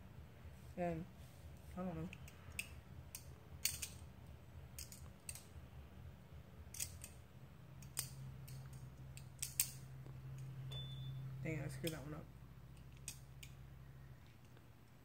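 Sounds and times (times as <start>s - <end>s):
low steady hum: 0.0s - 15.0s
butterfly knife clacking: 6.7s - 7.2s, 7.8s - 9.9s.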